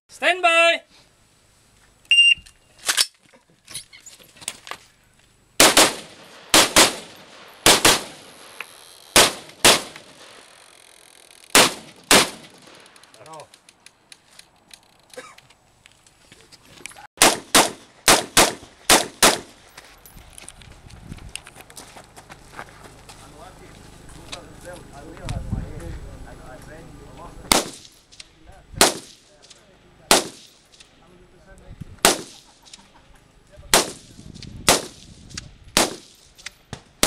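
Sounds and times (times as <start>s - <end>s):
rifle shots: 5.6s - 10.4s, 11.5s - 12.8s, 17.2s - 19.5s, 27.5s - 28.0s, 28.8s - 29.2s, 30.1s - 30.6s, 32.0s - 32.5s, 33.7s - 35.0s, 35.8s - 36.2s.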